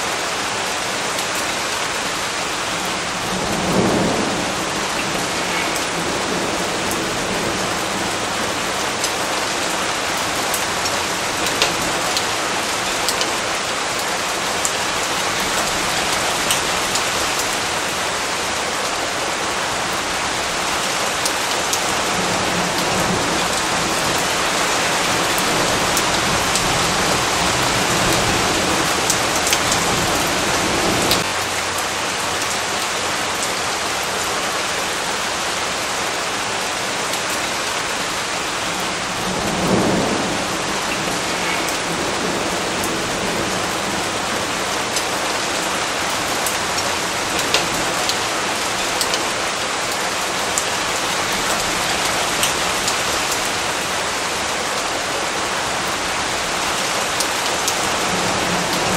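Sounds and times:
steady rain falling: 0.0 - 58.9
thunder rumble: 2.6 - 13.8, 38.6 - 46.8.

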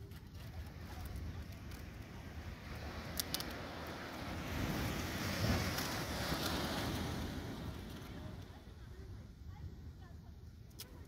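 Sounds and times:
beach surf washing in: 0.0 - 9.8
wind noise on microphone: 0.0 - 11.0
faint clicks: 3.1 - 3.9, 10.7 - 11.0.

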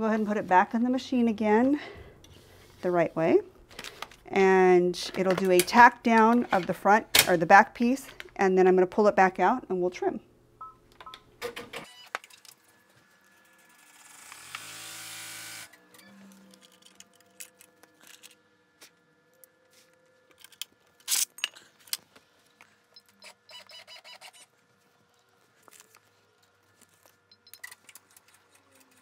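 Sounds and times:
embroidery machine motor whine: 12.6 - 20.8.

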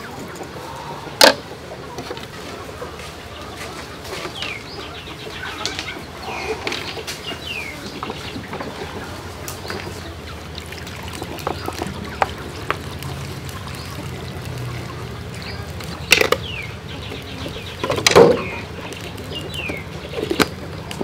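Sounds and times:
poultry calling: 0.0 - 20.8.

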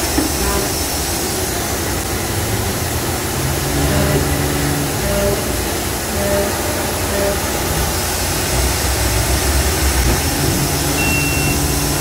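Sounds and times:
machine axis drive hum and whir: 0.0 - 12.0
high steady whine: 3.6 - 12.0.

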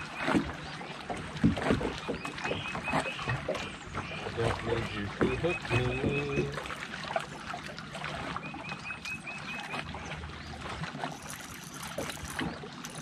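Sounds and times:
water lapping against boat hull: 0.0 - 13.0.

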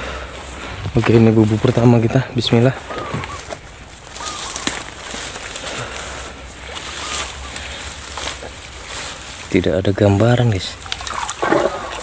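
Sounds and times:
footsteps through wet grass and mud: 0.0 - 12.0
faint bird chirps: 2.4 - 5.2, 6.6 - 8.0.

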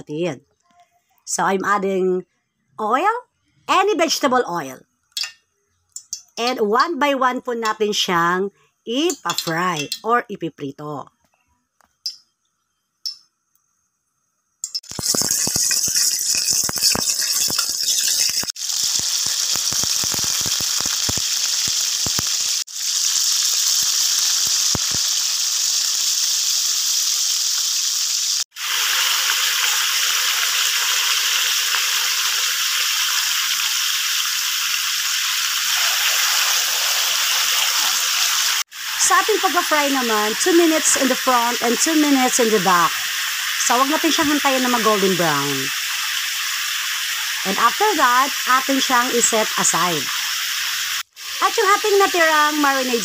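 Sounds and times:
meat sizzling in hot oil: 14.6 - 53.0.

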